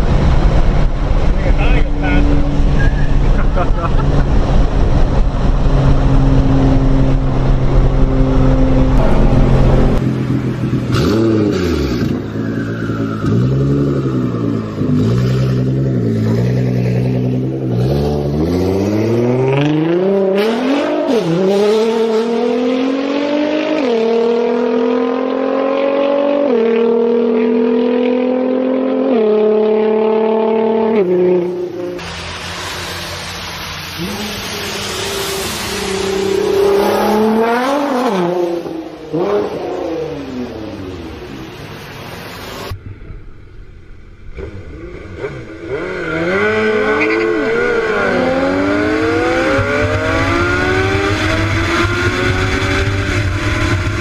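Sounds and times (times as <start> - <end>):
car engine revving and accelerating: 0.0 - 42.8, 44.2 - 54.0
rushing hiss: 31.9 - 39.1, 39.9 - 42.8.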